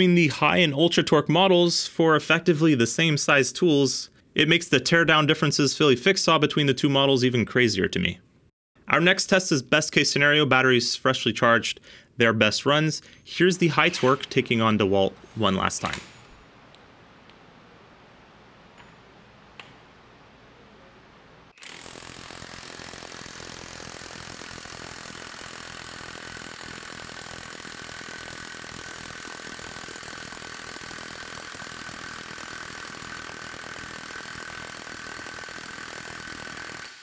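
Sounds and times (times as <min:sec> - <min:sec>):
impact wrench hammering: 0:21.6 - 0:37.0.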